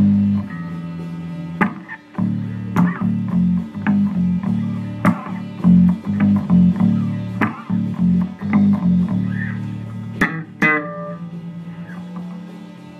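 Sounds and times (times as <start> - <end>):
electric bass guitar plucked: 0.0 - 12.9
sharp knocks on bass guitar: 1.6 - 9.5.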